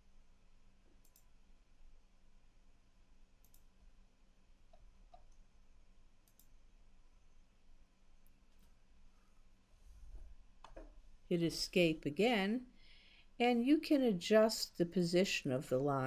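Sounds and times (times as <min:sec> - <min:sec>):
computer mouse clicks: 0:01.0 - 0:01.3, 0:03.4 - 0:03.7, 0:06.2 - 0:06.6.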